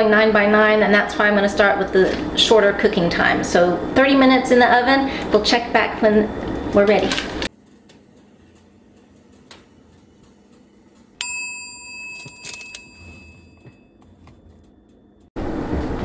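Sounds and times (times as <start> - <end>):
timer chime ding: 11.2 - 14.0.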